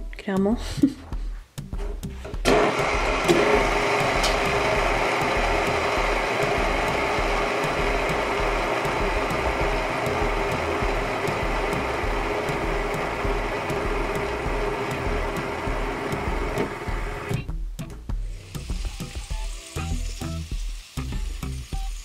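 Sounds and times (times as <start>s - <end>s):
fidget spinners whirring: 18.3s - 22.0s.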